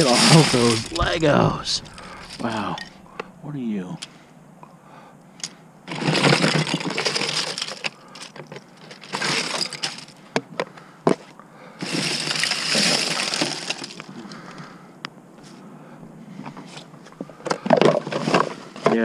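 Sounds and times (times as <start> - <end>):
plastic bricks clattering: 5.9 - 10.2, 11.8 - 14.1.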